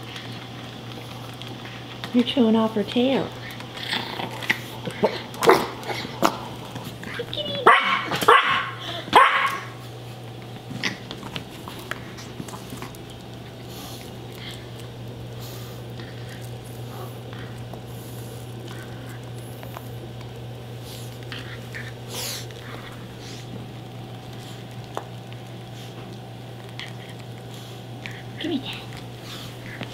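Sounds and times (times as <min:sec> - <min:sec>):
steady low hum: 0:00.0 - 0:29.9
small dog barking: 0:07.6 - 0:09.8.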